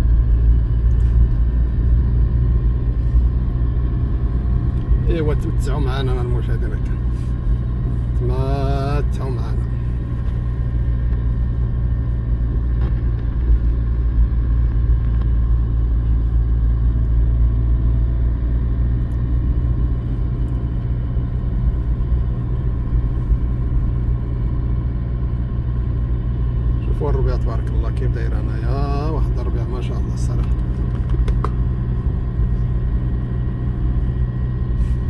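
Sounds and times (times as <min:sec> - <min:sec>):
car engine from inside cabin: 0:00.0 - 0:35.0.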